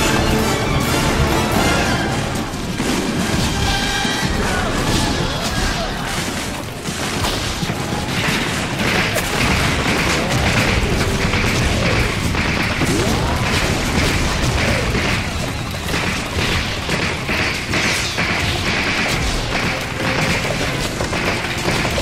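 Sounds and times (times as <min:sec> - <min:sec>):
music: 0:00.0 - 0:08.6, 0:10.4 - 0:22.0
booming explosions: 0:00.0 - 0:22.0
rifle fire: 0:04.6 - 0:22.0.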